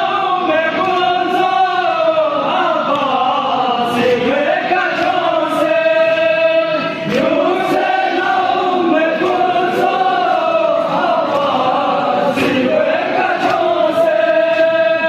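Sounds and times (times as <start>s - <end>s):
men chanting in unison: 0.0s - 15.0s
hands slapping chests: 2.8s - 4.2s, 7.0s - 14.8s.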